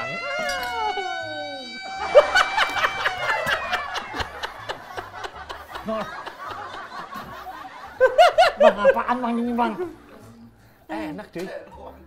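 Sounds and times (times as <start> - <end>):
people laughing: 0.0 - 10.0.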